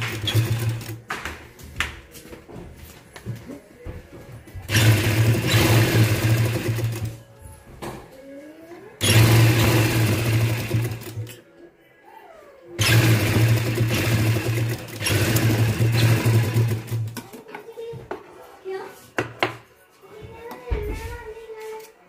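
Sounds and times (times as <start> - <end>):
sewing machine stitching: 0.0 - 1.0, 4.6 - 7.2, 9.0 - 11.4, 12.8 - 17.2.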